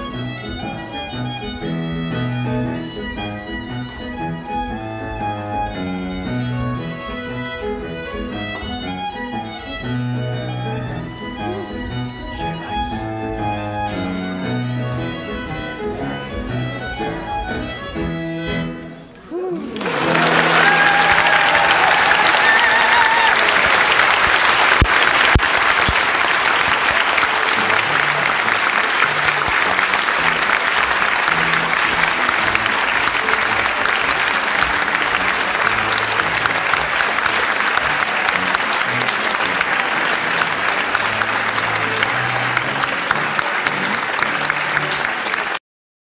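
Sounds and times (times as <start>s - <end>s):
fiddle dance music: 0.0s - 45.6s
audience applauding: 19.4s - 45.6s.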